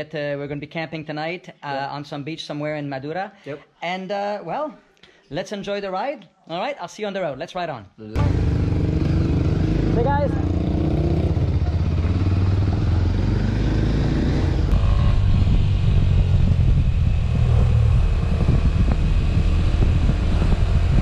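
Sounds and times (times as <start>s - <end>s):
motorcycle engine running: 8.2s - 21.0s
road noise on wet road: 8.2s - 21.0s
wind noise: 8.6s - 21.0s.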